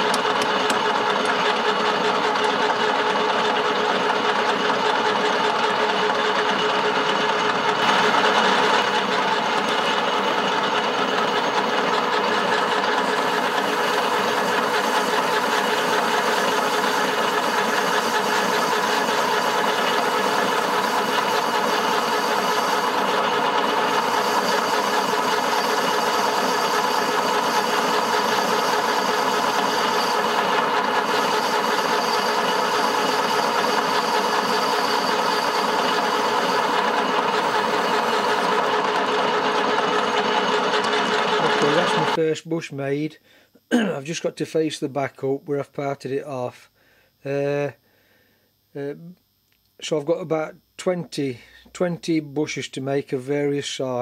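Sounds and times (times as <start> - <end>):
metal lathe motor whine: 0.0 - 42.2.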